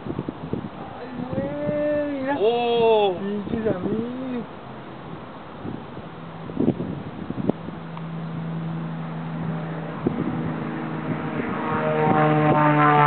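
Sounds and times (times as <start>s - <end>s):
propeller aircraft engine drone: 3.8s - 13.0s.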